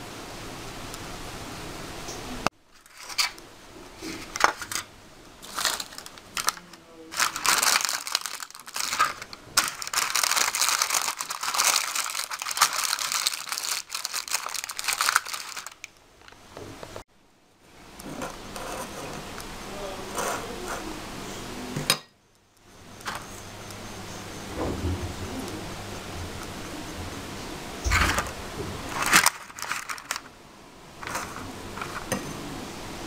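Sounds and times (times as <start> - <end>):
plastic sheet crinkling: 2.7 - 3.4, 4.0 - 16.4, 27.9 - 30.3, 31.0 - 32.2.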